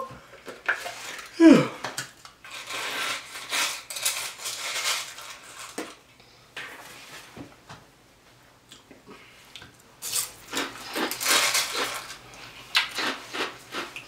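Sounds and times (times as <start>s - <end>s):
plastic spoon scraping crushed ice: 2.4s - 6.0s, 10.0s - 12.2s.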